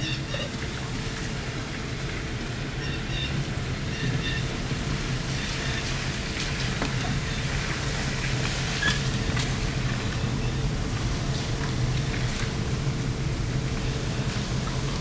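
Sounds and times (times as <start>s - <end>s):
engine and road hum: 0.0s - 15.0s.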